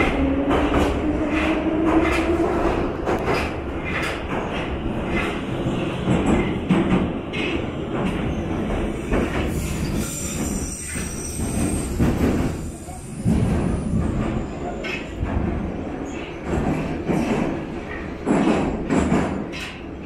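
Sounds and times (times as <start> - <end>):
train wheels rumbling on rails: 0.0 - 20.0.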